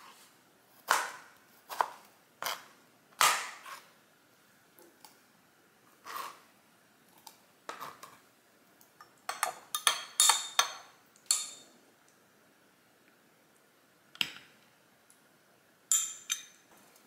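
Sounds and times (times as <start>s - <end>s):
metal spoon clinking in glass: 9.0s - 11.6s, 15.9s - 16.6s.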